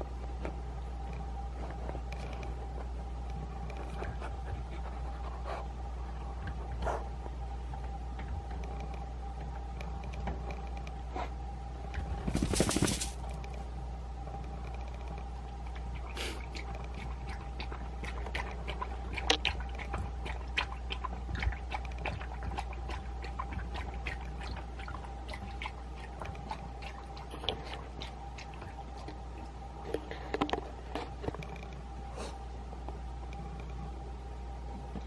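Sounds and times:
faint steady hum: 0:00.0 - 0:35.0
dog lapping at plastic bowl: 0:12.0 - 0:13.2, 0:16.1 - 0:31.2.

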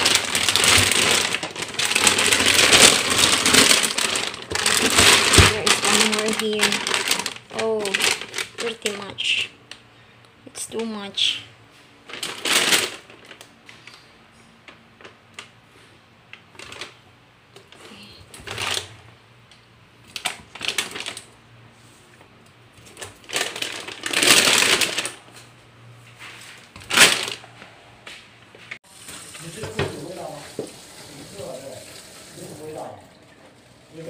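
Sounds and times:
plastic bag rustling and crinkling: 0:00.0 - 0:09.5, 0:12.0 - 0:14.0, 0:16.5 - 0:17.0, 0:17.7 - 0:19.1, 0:20.1 - 0:21.4, 0:22.8 - 0:27.6.

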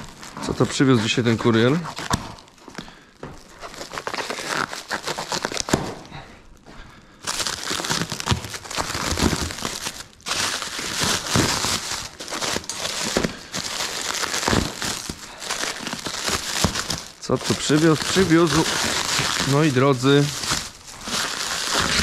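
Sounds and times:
plastic wrap crinkling and rustling: 0:00.0 - 0:06.2, 0:07.2 - 0:22.0
knife cutting plastic wrap: 0:03.6 - 0:06.0, 0:07.4 - 0:22.0.

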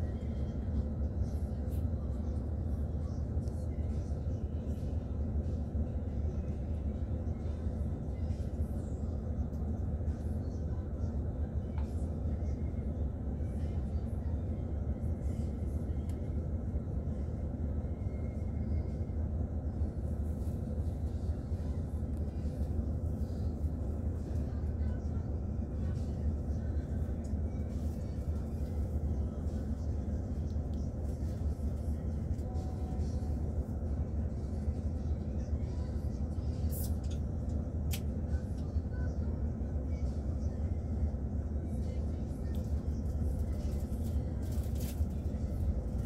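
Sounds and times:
coach diesel engine rumble: 0:00.0 - 0:46.0.

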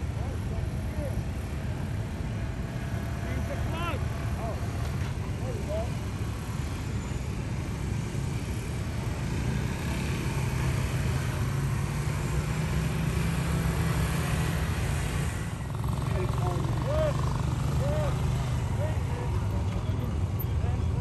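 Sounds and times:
motorcycle engine passing by: 0:08.4 - 0:20.4.

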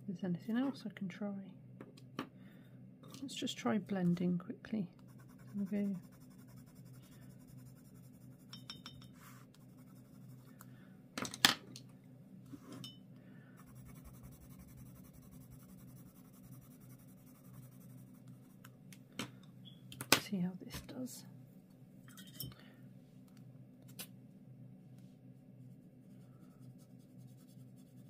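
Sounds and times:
pencil scratching on paper: 0:05.1 - 0:08.5, 0:13.6 - 0:18.6.

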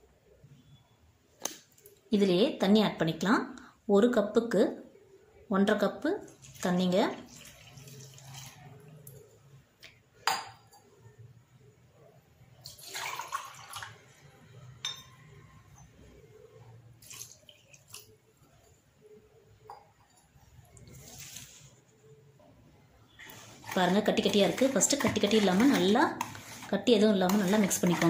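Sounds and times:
water pouring into bowl: 0:06.3 - 0:09.2, 0:12.6 - 0:14.2, 0:17.0 - 0:18.2.

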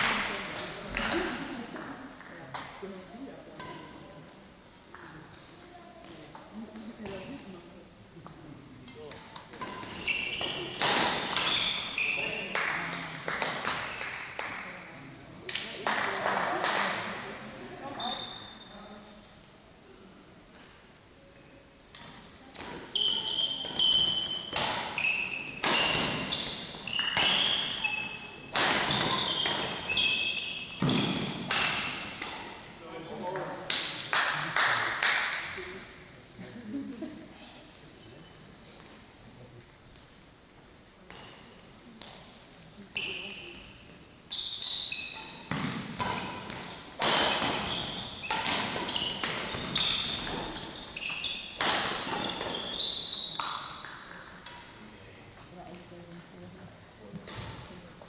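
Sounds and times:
shoes squeaking on court: 0:00.0 - 0:02.2, 0:08.4 - 0:12.5, 0:17.8 - 0:18.8, 0:22.0 - 0:32.5, 0:42.9 - 0:54.2, 0:55.8 - 0:57.7
racket hitting shuttlecock: 0:09.1 - 0:11.8, 0:22.0 - 0:26.3, 0:26.9 - 0:29.9, 0:30.8 - 0:32.6, 0:45.1 - 0:54.7
racket striking shuttlecock: 0:45.2 - 0:52.7.

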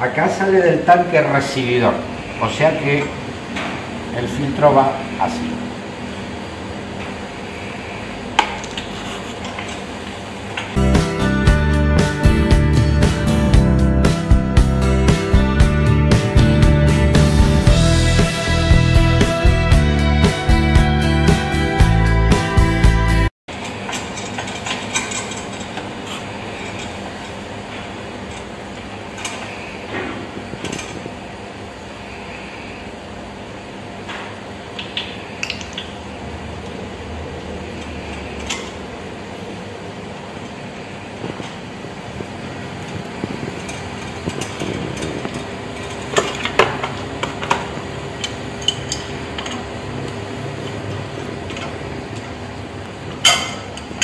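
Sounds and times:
steady low hum: 0:00.0 - 0:20.9, 0:23.9 - 0:54.0.

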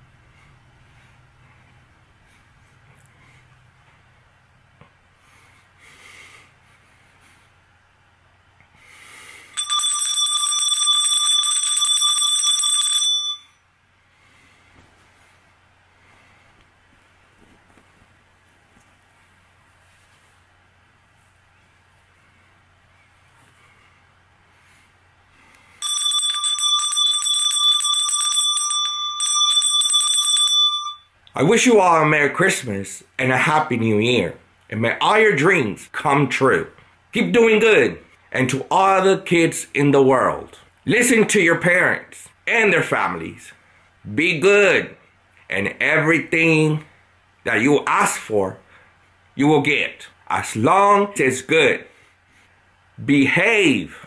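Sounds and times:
small handbell ringing: 0:25.8 - 0:31.1.

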